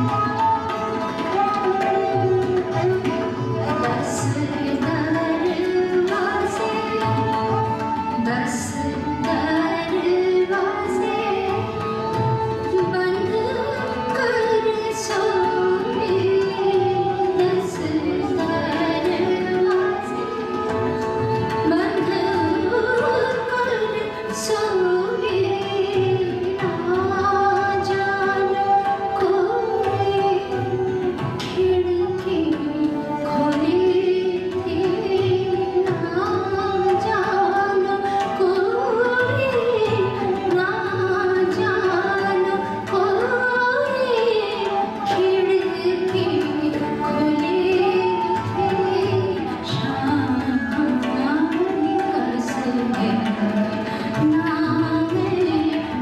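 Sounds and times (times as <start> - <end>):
bowed string instrument: 0.0 - 56.0
harmonium drone: 0.0 - 56.0
tabla drumming: 0.0 - 56.0
woman singing: 0.0 - 56.0.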